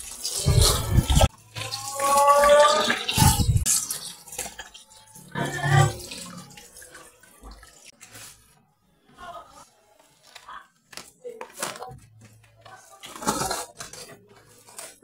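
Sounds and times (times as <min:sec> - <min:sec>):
water splashing in plastic basin: 0:00.0 - 0:08.4.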